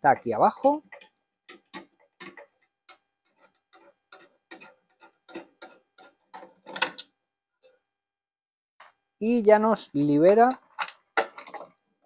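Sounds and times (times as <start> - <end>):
screwdriver scrape on metal: 0.8 - 7.8.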